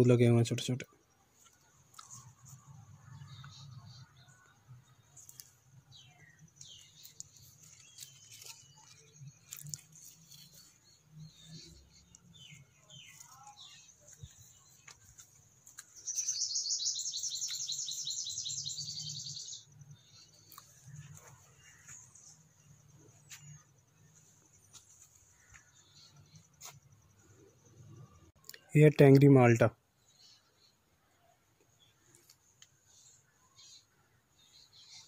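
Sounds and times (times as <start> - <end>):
small birds chirping: 0.0 - 35.0
loud rapid bird trill: 16.0 - 20.3.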